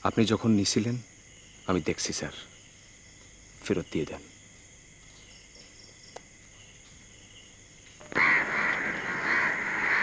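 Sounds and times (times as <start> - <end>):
faint insect chirring: 0.0 - 10.0
crows cawing: 8.0 - 10.0.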